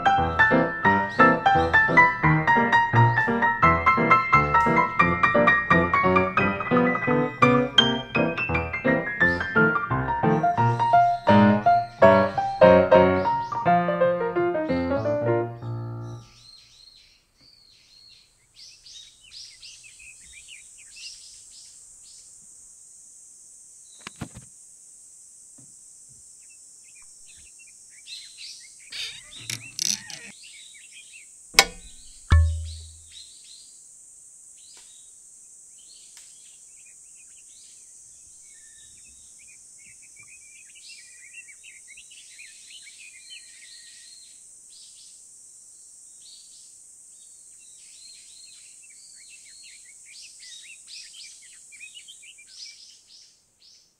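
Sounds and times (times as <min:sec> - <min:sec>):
small birds chirping: 0:00.0 - 0:13.8, 0:14.9 - 0:22.4, 0:26.4 - 0:33.8, 0:34.6 - 0:53.9
sharp click: 0:29.0 - 0:30.3, 0:31.6 - 0:33.1
short low thump: 0:31.6 - 0:33.1.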